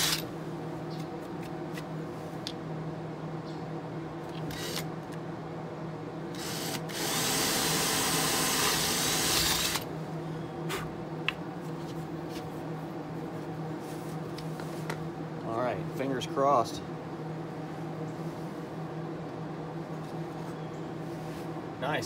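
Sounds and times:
cordless drill drilling: 0:06.4 - 0:09.9.

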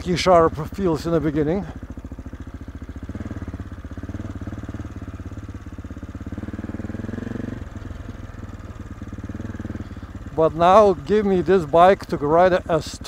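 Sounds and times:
single-cylinder motorcycle engine running: 0:00.0 - 0:13.0.

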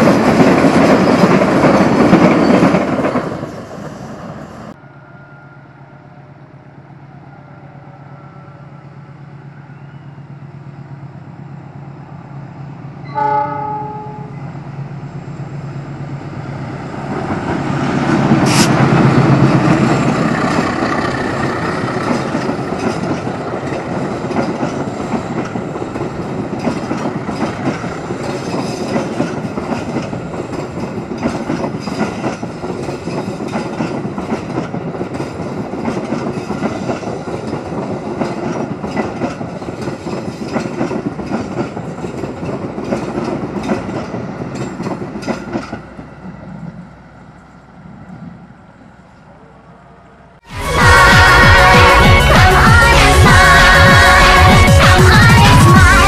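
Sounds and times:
train wheels clattering on rails: 0:00.0 - 0:04.4, 0:17.1 - 0:46.8.

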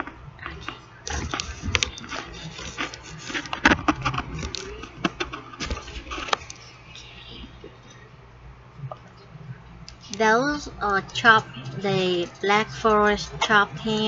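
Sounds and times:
rubbing and scraping: 0:01.1 - 0:06.5.

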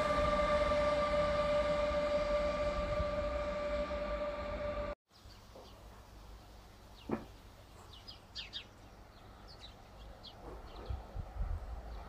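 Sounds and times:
small birds chirping: 0:05.1 - 0:11.1.

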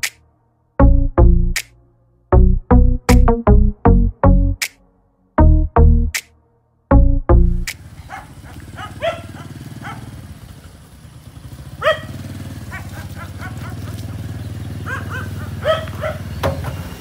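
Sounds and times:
motor scooter engine hum: 0:07.7 - 0:17.0
dog barking and yipping: 0:08.0 - 0:10.2, 0:11.8 - 0:14.1, 0:14.8 - 0:16.4.

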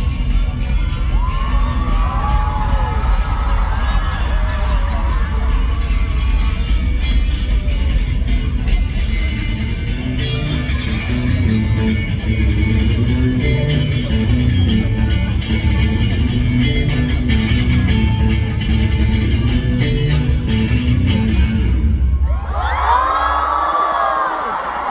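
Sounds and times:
live band playing: 0:00.0 - 0:22.1
electric guitar: 0:00.0 - 0:22.2
crowd cheering and screaming: 0:00.2 - 0:07.0, 0:22.1 - 0:24.9.

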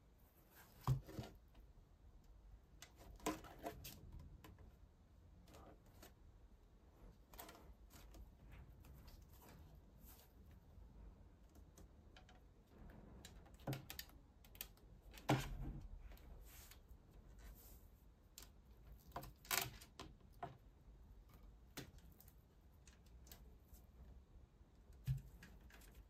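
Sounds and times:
plastic parts clicking and knocking: 0:11.4 - 0:16.2, 0:18.4 - 0:23.5.

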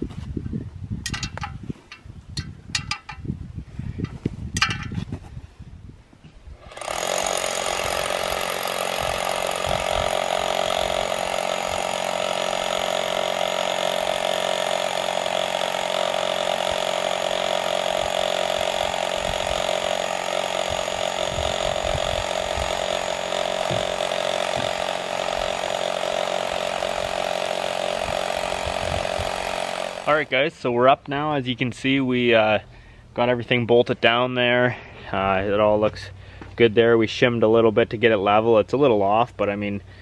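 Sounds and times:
rock drill boring into rock: 0:06.6 - 0:30.6.

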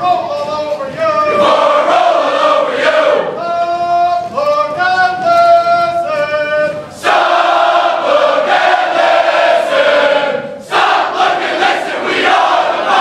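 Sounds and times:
soldiers singing in unison: 0:01.3 - 0:03.4, 0:07.0 - 0:13.0.

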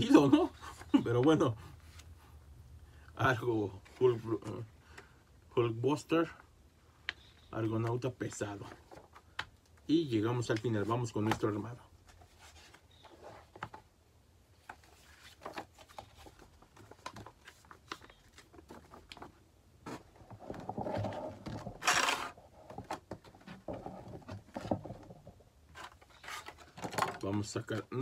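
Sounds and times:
paper and plastic rustling: 0:14.6 - 0:25.0, 0:25.7 - 0:28.0.

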